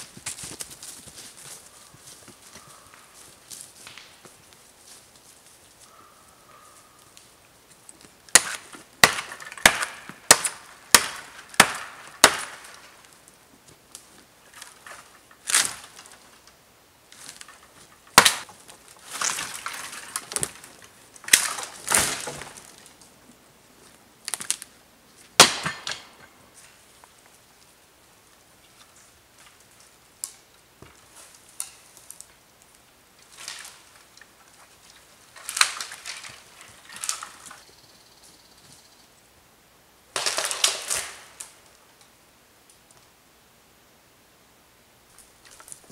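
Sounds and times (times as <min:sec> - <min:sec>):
dry wood cracking and snapping: 0:03.8 - 0:04.3, 0:07.1 - 0:23.1, 0:24.2 - 0:24.7, 0:31.6 - 0:37.6, 0:40.2 - 0:41.8, 0:45.2 - 0:45.9.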